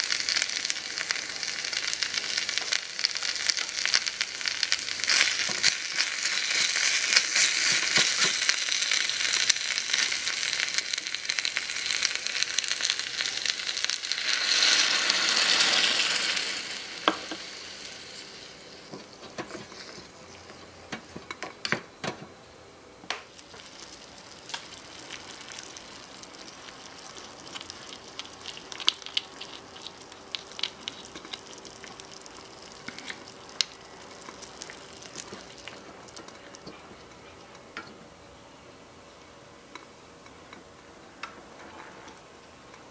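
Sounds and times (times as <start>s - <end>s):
chicken sizzling in hot oil: 0.0s - 21.2s, 23.3s - 36.3s.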